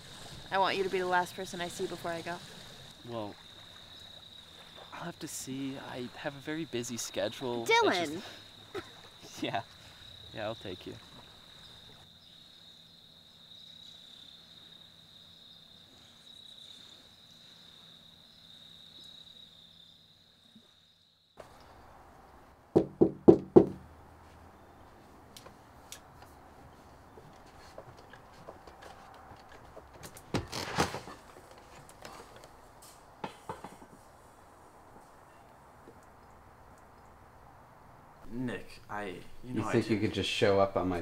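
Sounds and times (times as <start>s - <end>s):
crickets chirring: 0.0s - 22.4s, 27.4s - 41.0s
knocks on a door: 22.8s - 23.8s.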